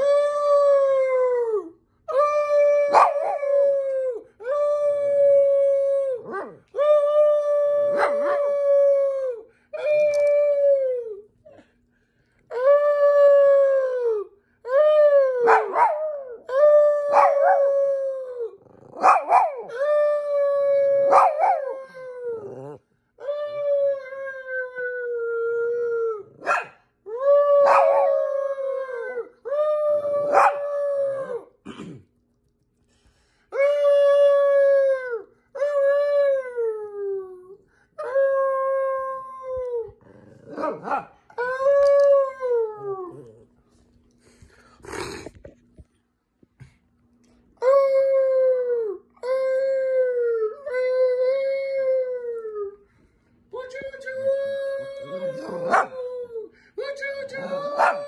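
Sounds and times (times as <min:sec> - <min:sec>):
dog howling: 0:00.0 - 0:11.2, 0:12.5 - 0:31.5, 0:54.6 - 0:56.5, 0:57.3 - 0:58.0.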